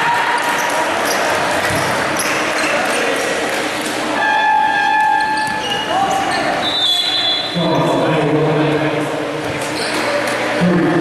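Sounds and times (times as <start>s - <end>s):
voices in gym: 0.0s - 11.0s
basketball bouncing: 1.6s - 2.0s.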